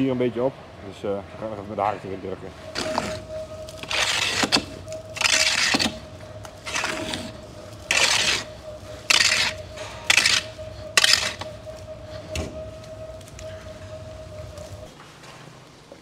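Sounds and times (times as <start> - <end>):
rake scraping concrete floor: 2.6 - 12.5.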